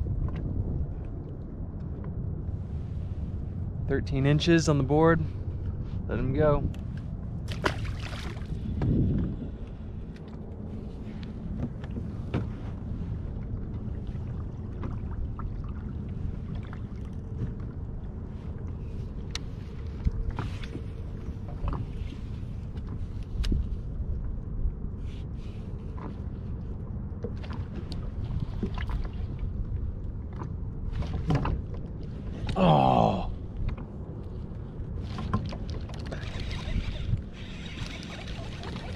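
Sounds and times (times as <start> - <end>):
wind and water rumble: 0.0 - 38.9
fish splashing into water: 7.5 - 8.6.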